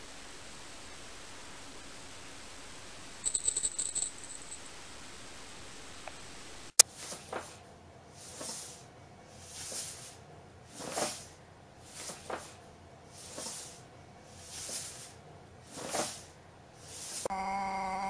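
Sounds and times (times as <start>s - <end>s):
cat hissing breaths: 13.1s - 17.3s.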